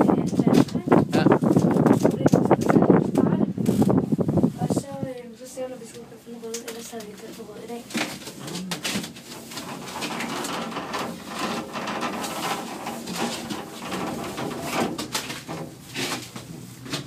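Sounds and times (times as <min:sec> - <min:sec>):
rustling inside cabin: 0:00.0 - 0:17.0.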